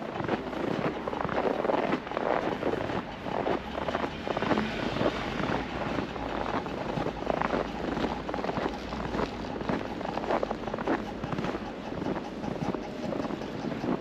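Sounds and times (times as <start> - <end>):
steady low rumble: 0.0 - 14.0
footsteps crunching through snow: 5.4 - 13.2.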